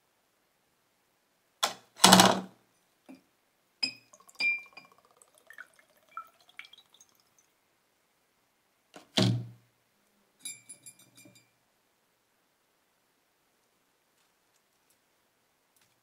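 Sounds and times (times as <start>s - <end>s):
drips falling into jar: 3.8s - 7.5s
liquid trickling: 3.9s - 7.6s
metal parts clinking against glass jar: 10.4s - 11.5s.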